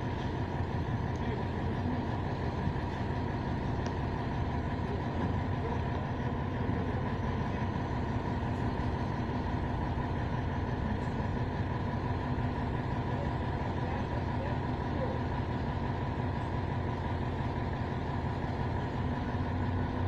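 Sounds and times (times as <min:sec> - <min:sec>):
crane engine droning: 0:00.0 - 0:20.0.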